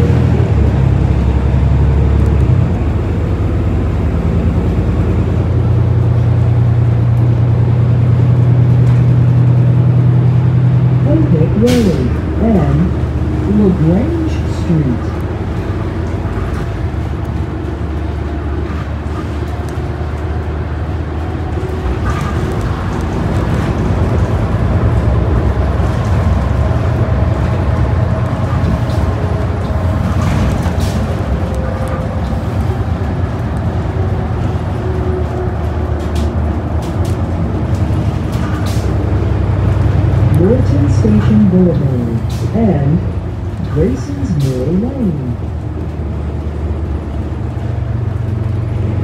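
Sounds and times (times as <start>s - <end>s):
bus engine rumble: 0.0s - 49.0s
road noise: 0.0s - 49.0s
bus body rattles: 11.6s - 13.4s, 14.0s - 43.6s.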